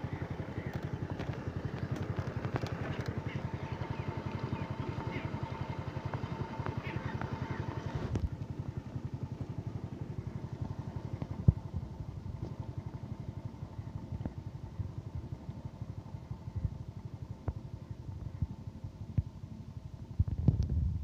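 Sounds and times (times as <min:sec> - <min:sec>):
stationary engine chugging: 0:00.0 - 0:20.2.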